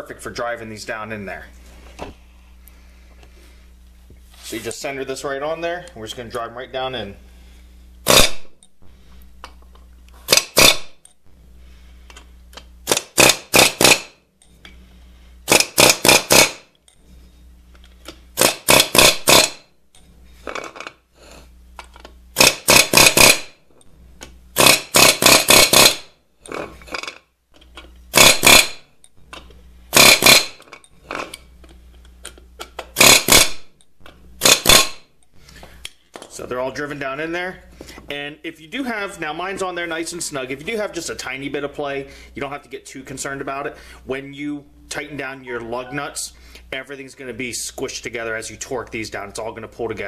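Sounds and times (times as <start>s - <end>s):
pneumatic air hammer bursts: 8.0s - 8.6s, 10.2s - 11.0s, 12.8s - 14.2s, 15.4s - 16.7s, 18.4s - 19.7s, 22.4s - 23.6s, 24.6s - 27.1s, 28.1s - 28.8s, 29.9s - 31.3s, 32.8s - 33.7s, 34.4s - 35.1s.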